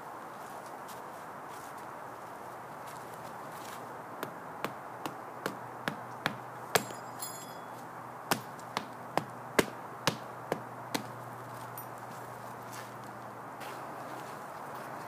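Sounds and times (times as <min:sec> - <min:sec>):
sharp knocks: 0:04.2 - 0:07.1.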